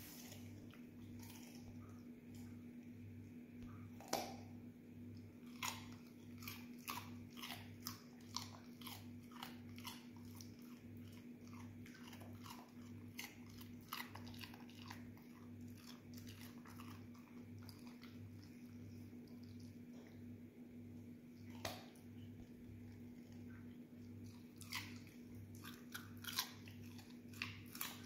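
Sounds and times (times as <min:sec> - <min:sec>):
dog crunching carrot: 0:00.0 - 0:02.8, 0:03.9 - 0:20.1, 0:21.4 - 0:28.0.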